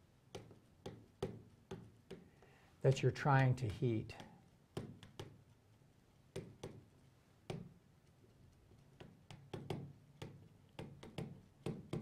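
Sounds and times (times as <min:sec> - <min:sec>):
pen tapping on touchscreen glass: 0:00.3 - 0:02.3, 0:04.1 - 0:05.4, 0:06.3 - 0:07.8, 0:08.9 - 0:12.0.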